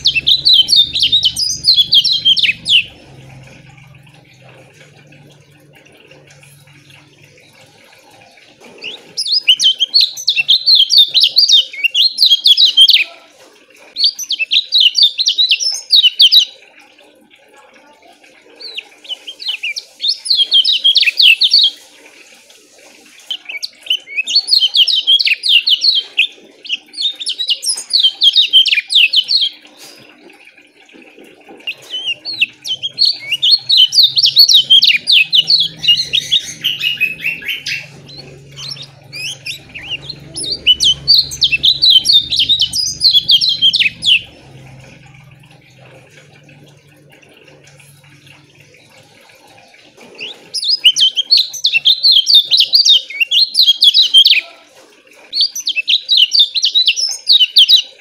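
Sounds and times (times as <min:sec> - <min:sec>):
bird high rapid chirping: 0:00.0 - 0:04.8, 0:08.8 - 0:13.1, 0:23.2 - 0:29.6, 0:31.6 - 0:46.1.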